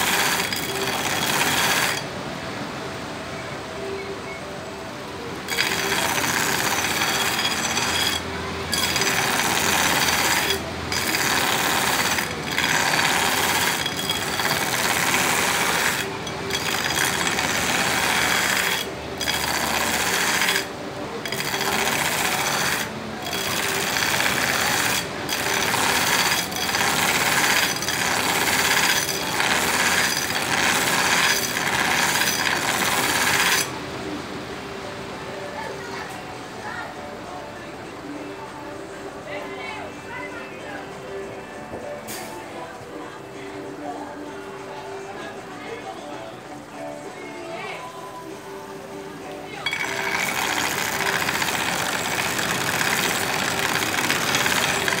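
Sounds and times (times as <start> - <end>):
belt grinder motor hum: 0.0 - 2.1, 5.5 - 33.7, 49.7 - 55.0
blade grinding on abrasive belt: 0.0 - 2.1, 5.4 - 33.7, 49.7 - 55.0.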